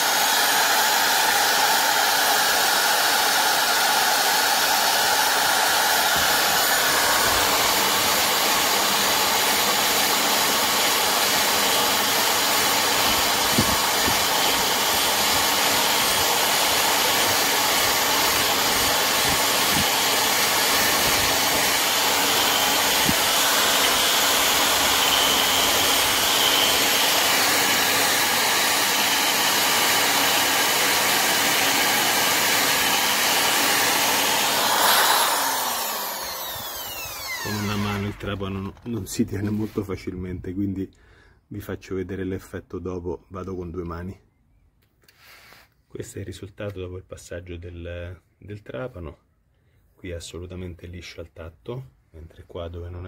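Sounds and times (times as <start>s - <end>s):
electric drill scouring brake disc: 0.0s - 39.0s.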